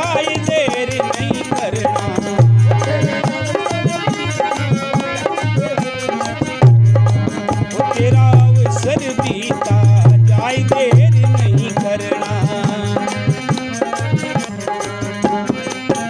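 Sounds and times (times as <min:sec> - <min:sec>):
tabla drumming: 0:00.0 - 0:16.0.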